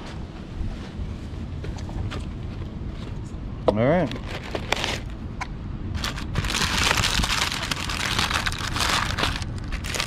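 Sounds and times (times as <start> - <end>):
paper liner crinkling: 6.0 - 10.0.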